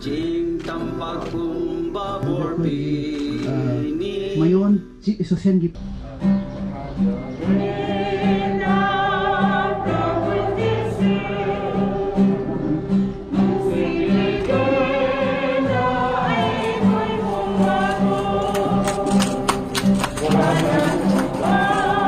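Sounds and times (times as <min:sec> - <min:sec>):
choir singing a hymn: 0:00.0 - 0:04.4, 0:07.3 - 0:22.0
steady accompaniment: 0:05.8 - 0:22.0.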